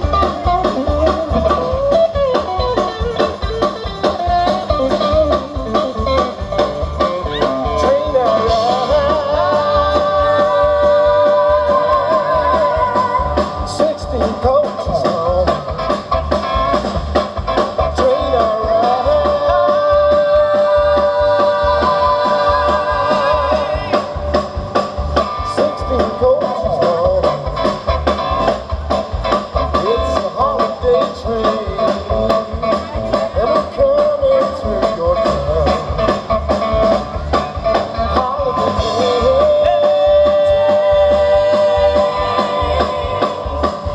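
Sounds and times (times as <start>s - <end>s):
live band playing: 0.0s - 43.9s
person singing: 7.2s - 15.7s, 17.8s - 24.3s, 25.4s - 27.6s, 29.7s - 36.1s, 37.1s - 43.9s.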